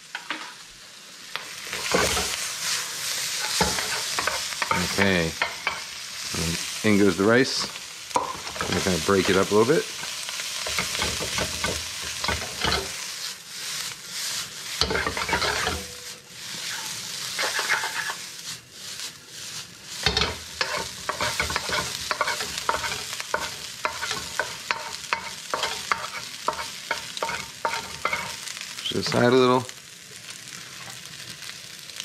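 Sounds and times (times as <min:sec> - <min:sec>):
rice sizzling in a wok: 0:00.0 - 0:32.0
wooden spatula scraping steel: 0:01.7 - 0:05.8, 0:14.3 - 0:18.4, 0:19.0 - 0:29.3.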